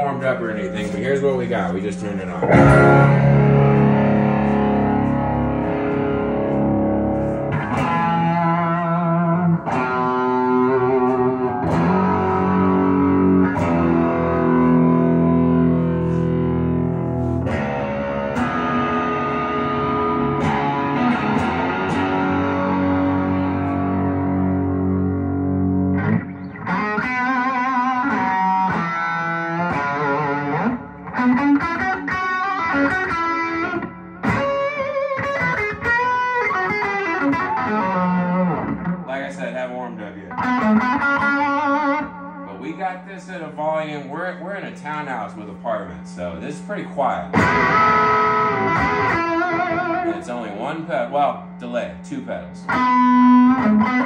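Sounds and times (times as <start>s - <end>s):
overdriven electric guitar: 2.1s - 39.5s, 40.2s - 42.6s, 47.3s - 50.6s, 52.6s - 54.0s.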